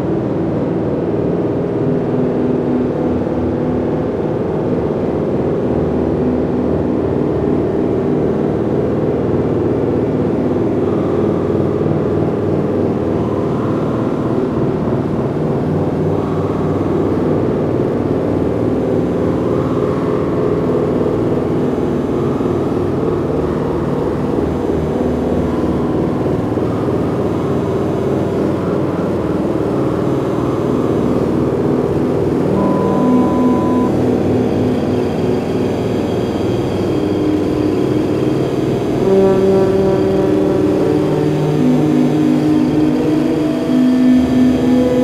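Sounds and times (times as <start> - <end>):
low drone rumble: 29.6 - 45.0
faint higher tones: 32.4 - 34.4.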